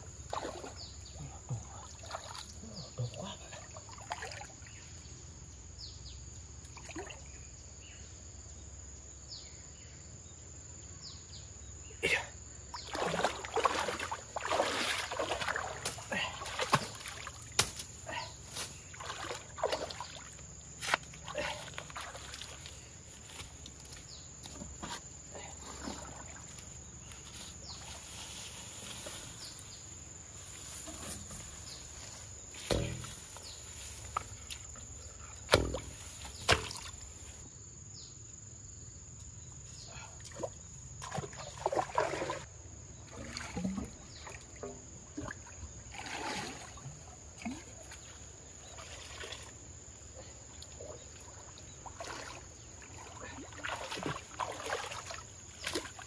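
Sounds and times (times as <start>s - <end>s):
muddy water sloshing and splashing: 0.1s - 4.9s, 6.7s - 7.4s, 12.7s - 37.4s, 40.2s - 56.0s.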